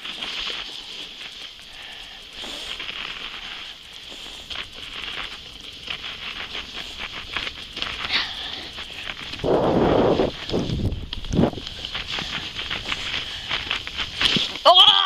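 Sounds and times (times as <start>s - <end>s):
sledge runners sliding over snow: 0.0s - 15.0s.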